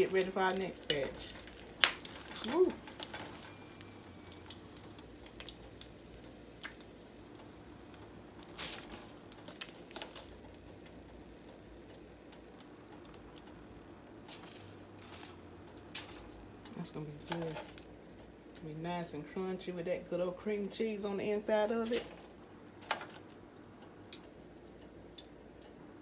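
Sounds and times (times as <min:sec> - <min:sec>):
oil sizzling in frying pan: 0:00.0 - 0:18.6.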